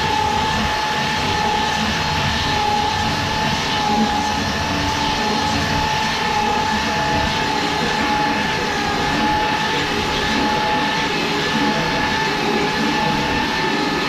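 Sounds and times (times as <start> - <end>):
power tool motor whine: 0.0 - 14.0.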